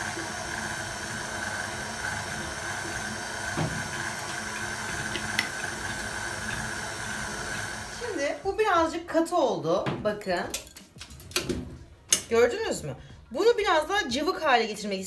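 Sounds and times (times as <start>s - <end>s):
stand mixer whirring: 0.0s - 8.3s.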